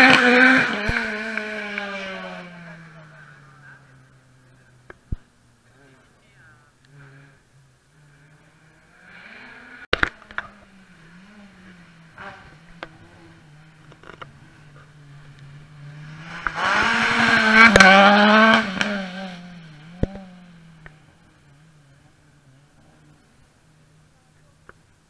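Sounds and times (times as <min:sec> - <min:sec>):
rally car engine revving: 0:00.0 - 0:25.0
sharp crack: 0:09.9 - 0:10.6.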